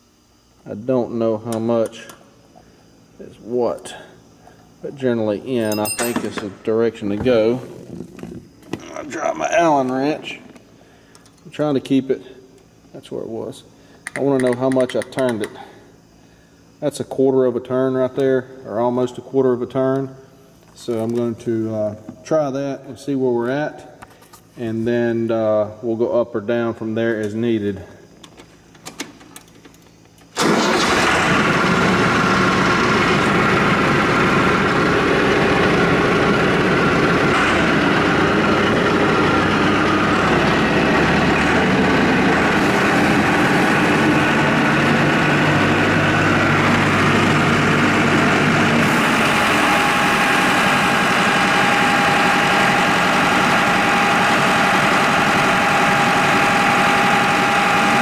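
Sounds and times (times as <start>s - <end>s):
hydraulic whine: 30.3s - 58.0s
tractor diesel engine running: 30.4s - 58.0s.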